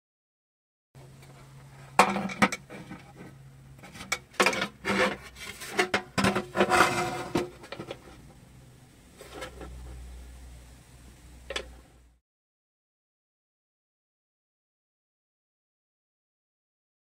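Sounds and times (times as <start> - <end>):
fingers scraping baking pan: 2.6 - 8.2.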